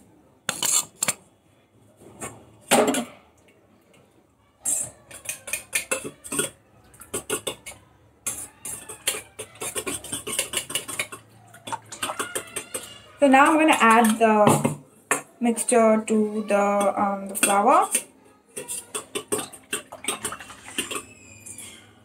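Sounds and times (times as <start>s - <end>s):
utensil clinking against bowl: 4.8s - 14.3s, 16.6s - 21.2s.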